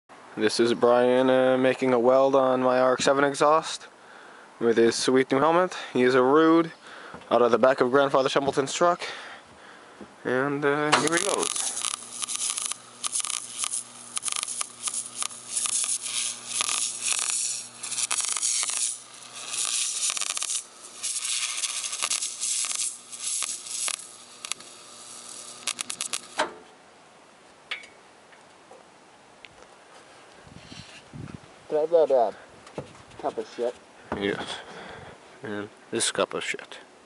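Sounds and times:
low welder hum: 10.2s - 26.7s
arc welder crackling and sizzling: 10.5s - 26.6s.

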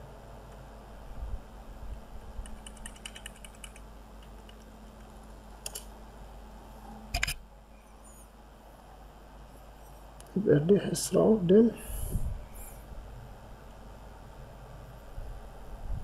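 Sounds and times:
computer keyboard typing: 2.4s - 5.9s.

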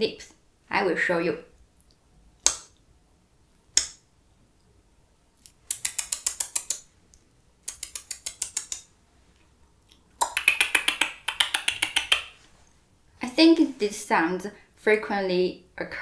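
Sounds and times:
rapid wet mouth clicks: 5.4s - 8.9s, 9.8s - 12.4s
lip smack: 9.9s - 12.3s.

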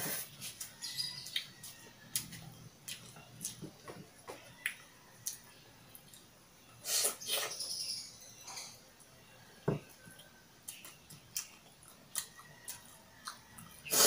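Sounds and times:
mouth chewing noodles: 10.1s - 14.0s.

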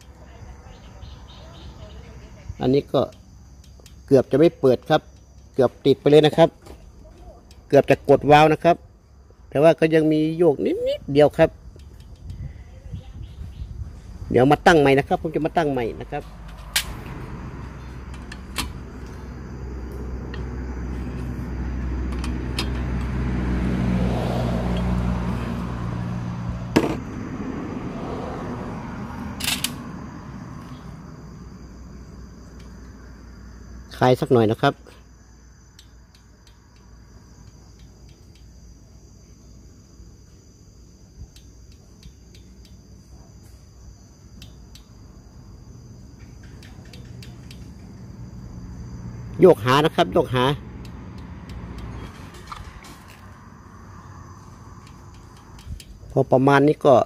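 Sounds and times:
high insect trill: 0.0s - 57.0s
hand tool clicks on engine: 3.1s - 4.0s, 11.7s - 12.4s, 22.1s - 23.2s, 35.7s - 38.6s, 41.3s - 42.9s, 46.2s - 47.9s, 50.7s - 53.2s, 54.8s - 56.3s
vehicle engine hum: 11.5s - 34.0s, 35.0s - 56.9s
sharp click: 16.5s - 17.1s, 29.4s - 29.8s.

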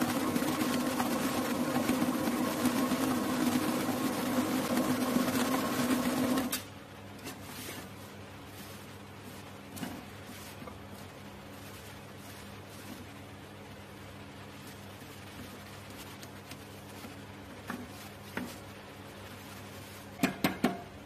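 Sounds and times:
stand mixer motor hum: 0.0s - 6.6s.

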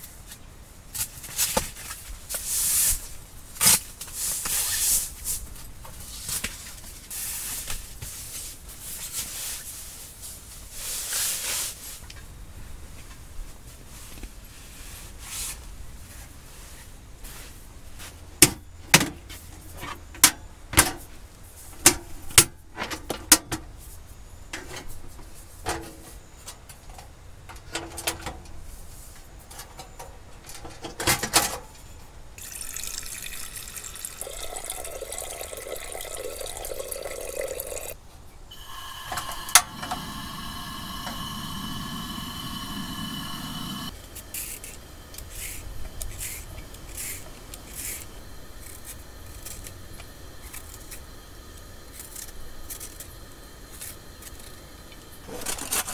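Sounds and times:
water pouring: 32.4s - 43.9s
gas burner hissing: 32.4s - 55.9s.

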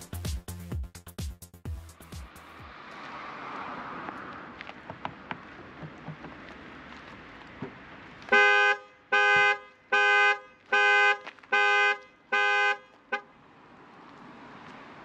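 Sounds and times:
car alarm horn blasts: 8.3s - 13.3s
short car horn beep: 8.3s - 13.3s.

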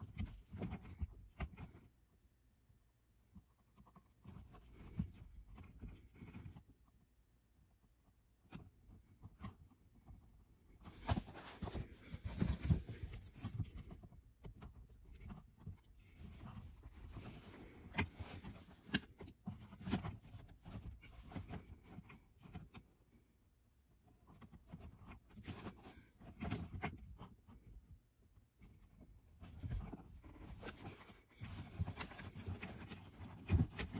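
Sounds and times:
hands rustling wiring: 8.4s - 22.9s, 28.6s - 33.9s.

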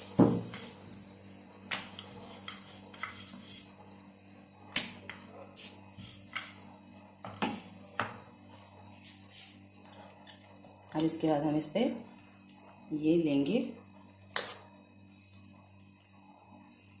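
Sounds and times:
rolling pin rolling dough: 0.0s - 4.0s.

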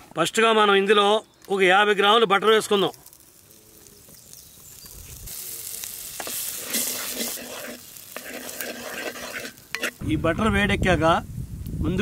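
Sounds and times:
butter sizzling in a pot: 2.4s - 10.1s.

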